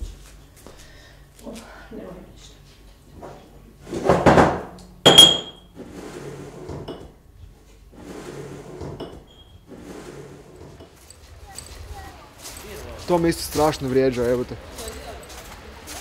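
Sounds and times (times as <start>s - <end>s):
dishes clattering: 4.2s - 5.6s
ringing clink: 5.1s - 5.6s.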